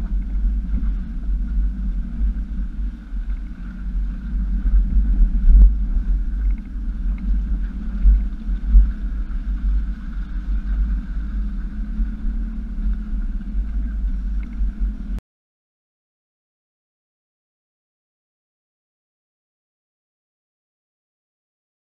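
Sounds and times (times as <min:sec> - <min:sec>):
low engine rumble: 0:00.0 - 0:15.2.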